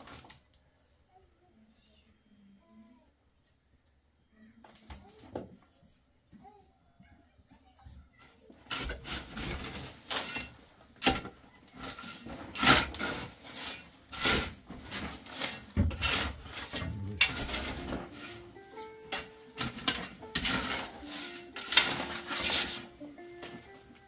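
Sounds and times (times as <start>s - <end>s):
shovel scraping stony soil: 19.6s - 22.9s.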